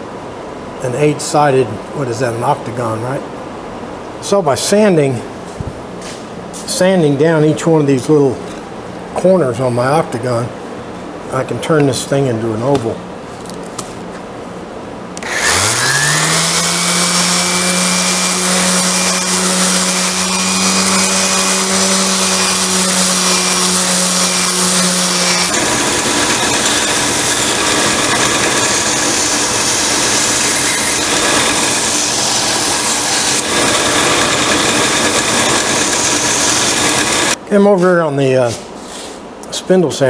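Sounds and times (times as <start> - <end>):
bench-top sander running: 15.2 - 37.4
random orbital sander whine: 15.2 - 37.4.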